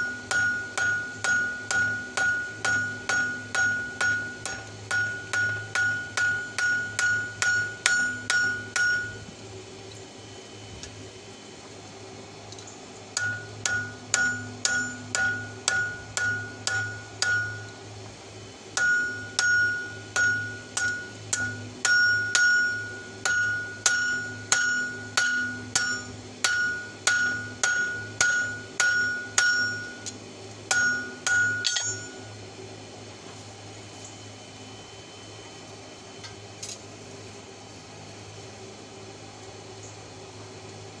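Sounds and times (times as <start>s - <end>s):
hammer striking metal on anvil: 0.0s - 9.3s, 13.2s - 17.8s, 18.8s - 32.3s.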